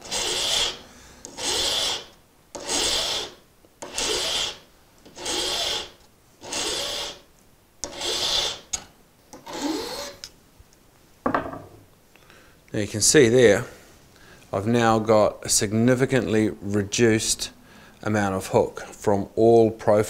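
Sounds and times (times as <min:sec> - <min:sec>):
hand file rasping on metal hook: 0:00.0 - 0:07.2, 0:07.8 - 0:08.8, 0:09.4 - 0:10.3.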